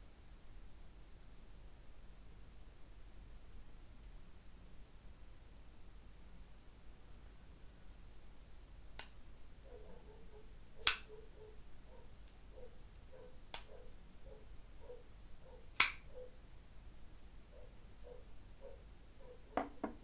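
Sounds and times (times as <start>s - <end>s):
folding knife blade clicking: 10.8s - 11.1s, 15.8s - 16.0s.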